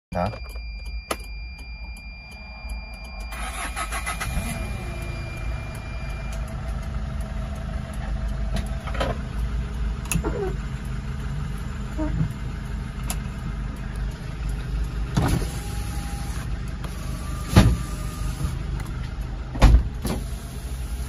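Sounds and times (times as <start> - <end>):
high warning tone: 0.1 - 8.5
diesel engine starting and idling: 1.6 - 21.0.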